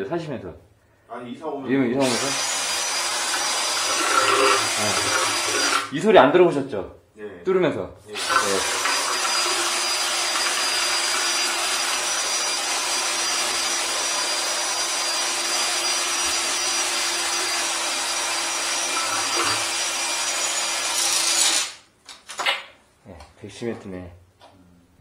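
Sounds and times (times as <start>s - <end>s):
drain cable scraping and grinding: 3.3s - 5.9s, 18.8s - 19.8s.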